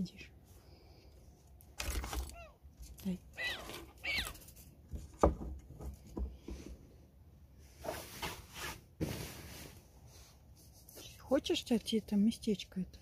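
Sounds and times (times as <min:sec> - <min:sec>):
rustling: 0:07.6 - 0:11.3.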